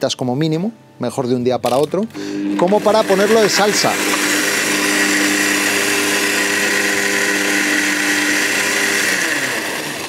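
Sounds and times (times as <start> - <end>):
blender motor running: 2.2 - 10.0.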